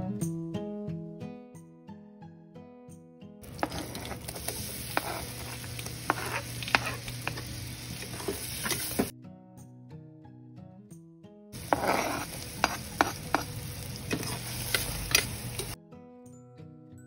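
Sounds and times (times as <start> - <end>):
acoustic guitar music: 0.0 - 4.6, 8.1 - 11.8, 12.5 - 17.0
butter sizzling in a pot: 3.4 - 9.1, 11.6 - 15.8
metal spatula scraping a pot: 3.4 - 9.1, 11.6 - 15.8.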